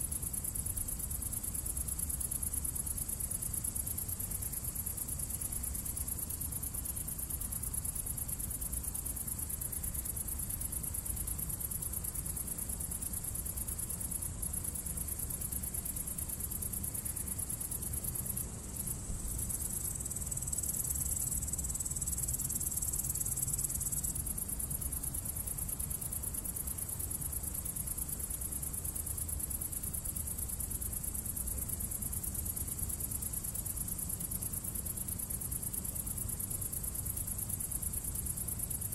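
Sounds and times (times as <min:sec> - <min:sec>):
insects chirping: 0:00.0 - 0:38.9
low rumble of wind or traffic: 0:06.8 - 0:22.8.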